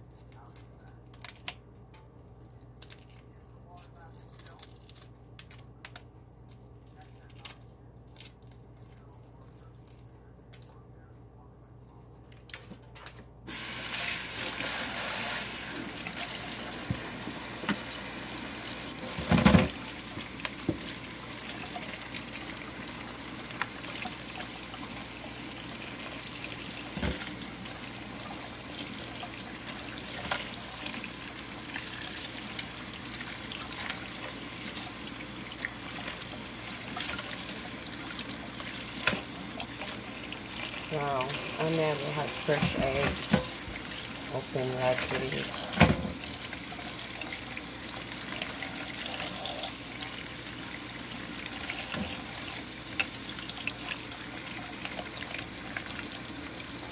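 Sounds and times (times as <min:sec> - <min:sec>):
eggshell crackling as peeled: 0:00.0 - 0:10.8
tap water running into sink: 0:13.5 - 0:56.9.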